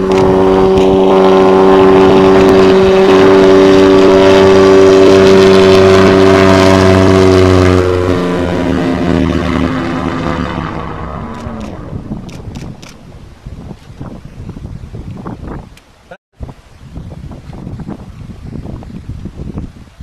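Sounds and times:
ultralight aircraft engine drone: 0.0 - 15.8.

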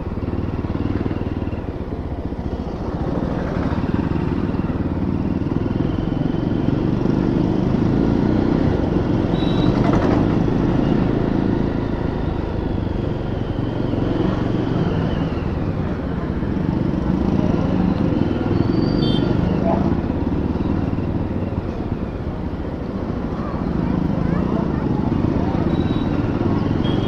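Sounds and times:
motorcycle engine running: 0.0 - 27.0.

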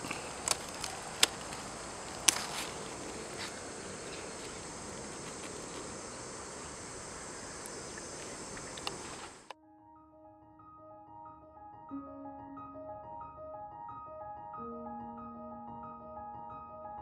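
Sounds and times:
scissors snipping a stem: 0.0 - 4.6
high-pitched insect chorus: 0.0 - 9.5.

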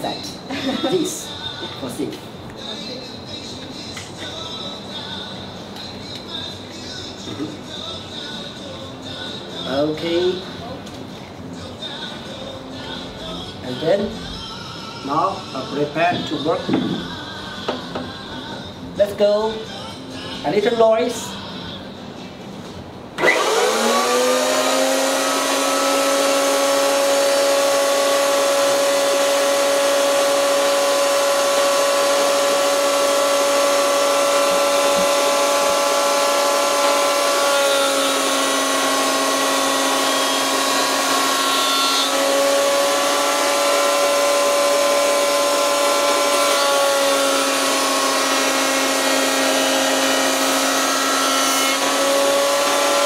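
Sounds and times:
electric planer whining: 23.2 - 53.0.

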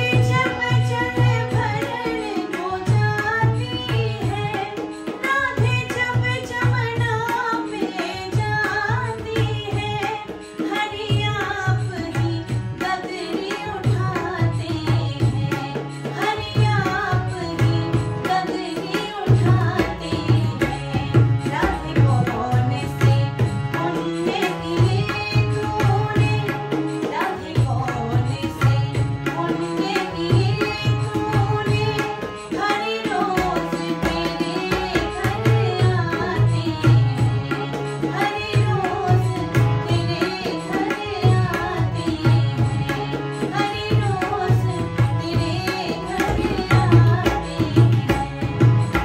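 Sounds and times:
harmonium held notes: 0.0 - 49.0
tabla rhythm: 0.0 - 49.0
woman singing: 0.0 - 49.0.

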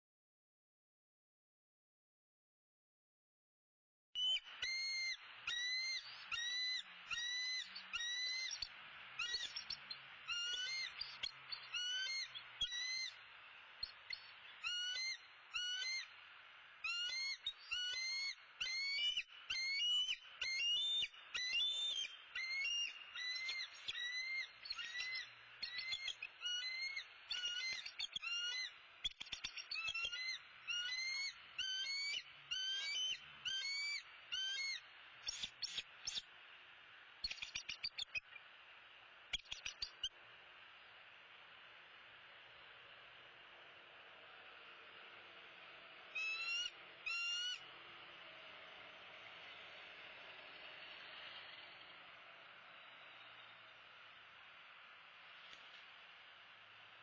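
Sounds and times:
eagles chirping alarm calls: 4.2 - 13.2, 13.8 - 16.1, 16.8 - 36.2, 46.1 - 47.6.

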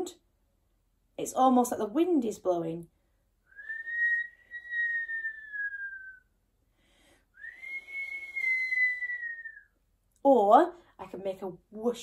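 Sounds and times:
person whistling: 3.5 - 6.3, 7.4 - 9.8.

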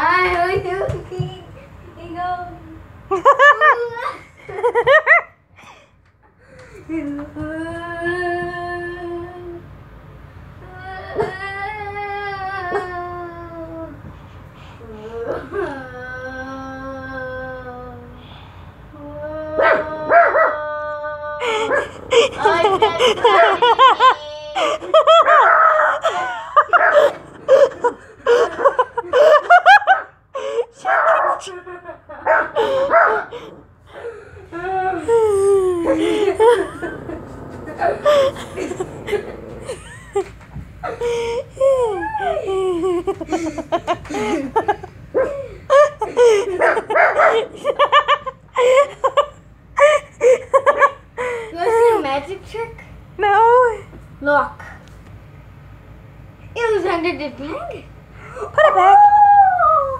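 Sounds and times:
wavering cries: 19.0 - 30.8, 32.6 - 51.8
person laughing: 21.4 - 25.4, 26.0 - 30.7, 31.4 - 51.4
dog barking and yipping: 25.1 - 26.0, 26.7 - 27.1, 30.8 - 31.4, 32.3 - 33.3, 46.6 - 47.6
small dog vocalizing: 35.6 - 40.4.

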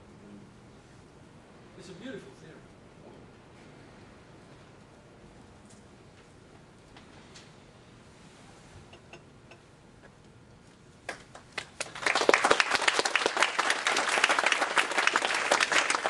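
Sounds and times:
audience applauding: 11.1 - 16.0.

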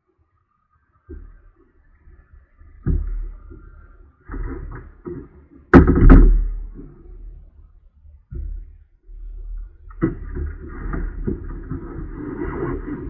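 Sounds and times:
knocks on plastic kayak: 5.7 - 6.6.

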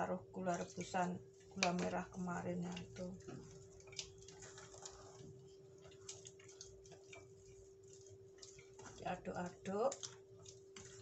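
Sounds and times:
spatula scraping steel bowl: 2.7 - 11.0.

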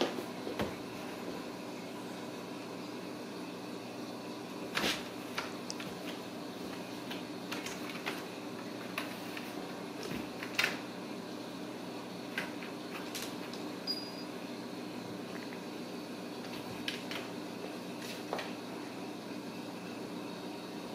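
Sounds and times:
fan-like hum: 0.0 - 20.9
kitten paws tapping and scratching: 4.8 - 10.8, 12.3 - 13.7, 16.4 - 17.3.

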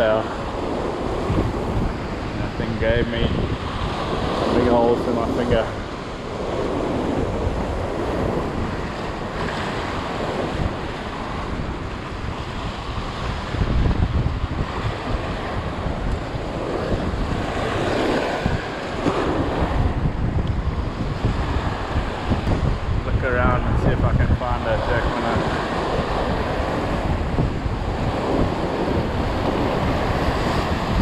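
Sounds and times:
surf breaking over rocks: 0.0 - 31.0
wind buffeting microphone: 0.0 - 31.0.

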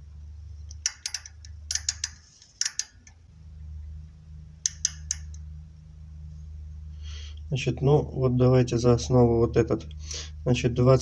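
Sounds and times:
low hum: 0.0 - 11.0
micrometer ratchet clicking: 0.7 - 3.2, 4.6 - 5.4.

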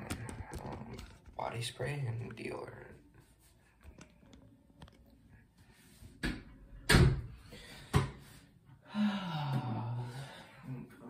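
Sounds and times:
low groan: 8.9 - 10.9.

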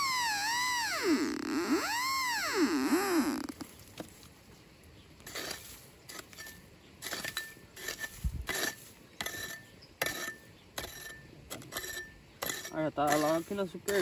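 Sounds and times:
hand hoe chopping into dry soil: 5.2 - 14.0.

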